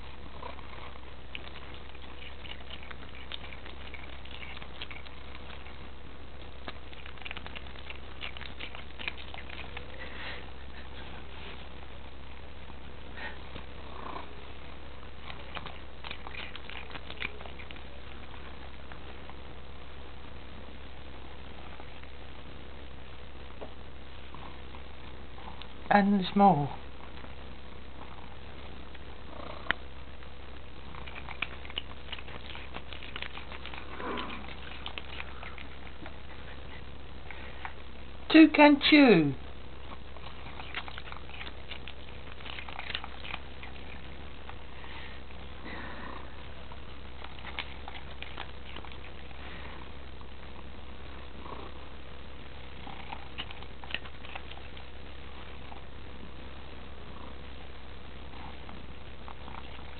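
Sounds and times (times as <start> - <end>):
cat chewing plastic: 0.0 - 11.6, 15.0 - 19.4, 30.8 - 37.8, 39.8 - 45.4, 46.4 - 49.8, 52.8 - 55.9, 58.3 - 59.9.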